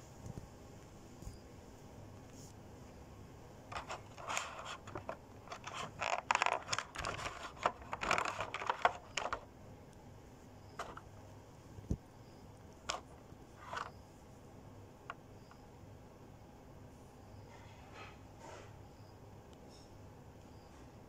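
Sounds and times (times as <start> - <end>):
plastic packaging crinkling: 3.7 - 9.4.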